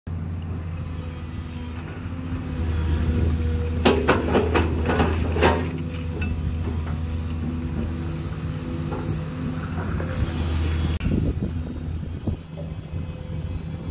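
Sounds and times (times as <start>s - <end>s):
diesel engine running: 0.1s - 13.9s
excavator clanks and knocks: 3.2s - 10.2s.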